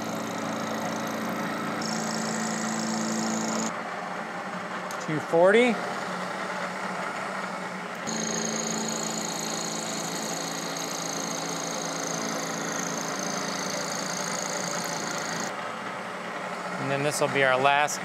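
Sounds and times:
end mill cutting steel whine: 0.0 - 3.8, 8.0 - 15.8
motor hum: 0.0 - 5.0, 5.8 - 16.8.

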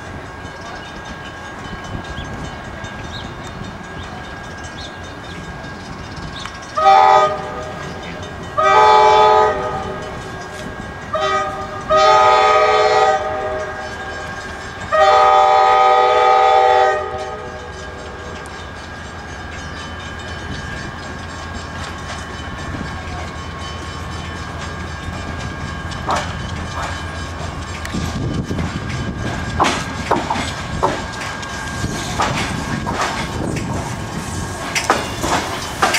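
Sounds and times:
train rolling with low rumble: 0.0 - 35.9
train air horn blasts: 6.8 - 7.9, 8.6 - 10.0, 11.1 - 14.2, 14.9 - 17.6.

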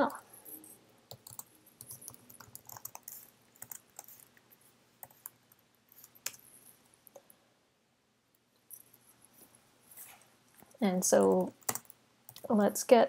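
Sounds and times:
keyboard typing: 0.1 - 4.4, 5.0 - 7.3, 11.2 - 12.5.

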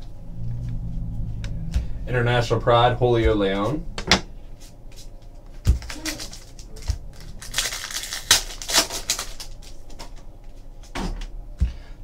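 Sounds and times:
foil wrapper crinkling: 5.7 - 10.3.

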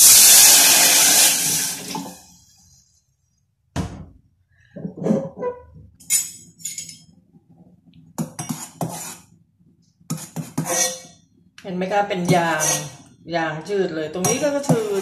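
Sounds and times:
metal spoon clinking on saucepan: 14.2 - 15.0.

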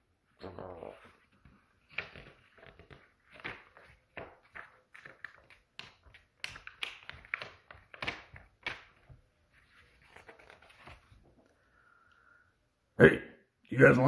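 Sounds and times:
book page flapping: 1.0 - 11.6
paper rustling: 1.0 - 11.6.

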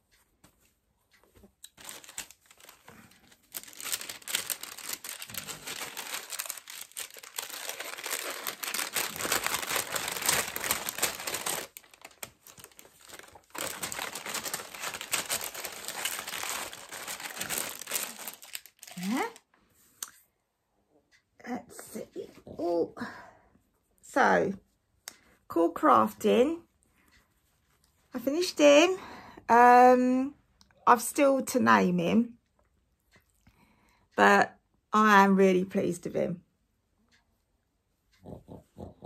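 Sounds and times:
crinkly wrapping rustling: 1.2 - 19.5.

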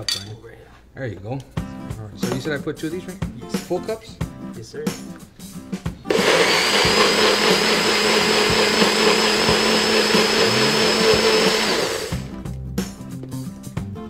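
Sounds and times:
blender motor whining: 6.1 - 12.3.

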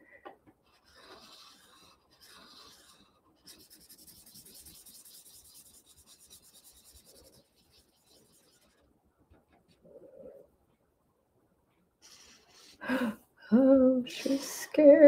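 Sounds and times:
marker scribbling on paper: 0.6 - 8.8, 12.0 - 12.8.

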